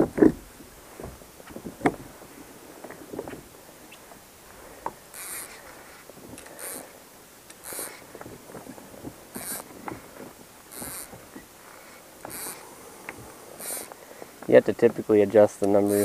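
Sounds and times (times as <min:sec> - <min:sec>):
pedal drive swishing: 0:04.9 - 0:06.9, 0:07.5 - 0:08.2, 0:09.1 - 0:14.0, 0:15.7 - 0:16.0.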